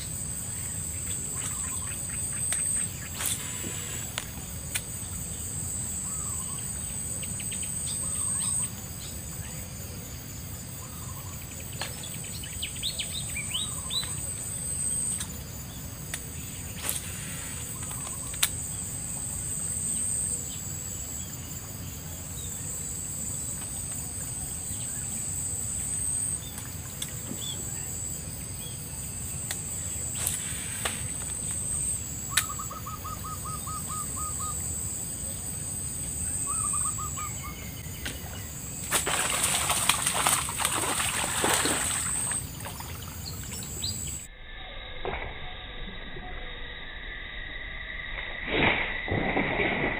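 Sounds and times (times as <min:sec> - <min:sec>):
insects droning: 0:00.0 - 0:49.9
bird calls: 0:00.6 - 0:04.2, 0:06.0 - 0:09.1, 0:10.8 - 0:14.3, 0:16.4 - 0:18.4, 0:32.3 - 0:34.6, 0:36.2 - 0:44.3.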